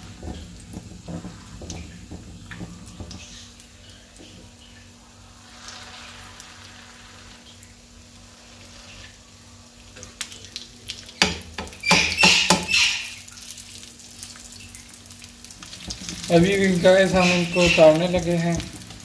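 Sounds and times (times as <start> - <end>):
patties sizzling in oil: 0.0 - 19.0
metal spatula scraping pan: 16.7 - 18.2.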